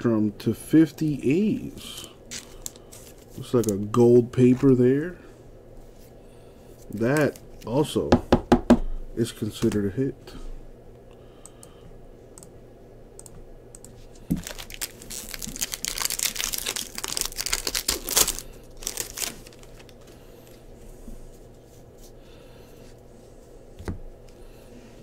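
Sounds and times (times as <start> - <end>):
cards being handled: 1.8 - 3.9
foil wrapper crinkling and tearing: 1.9 - 4.0, 14.3 - 20.2.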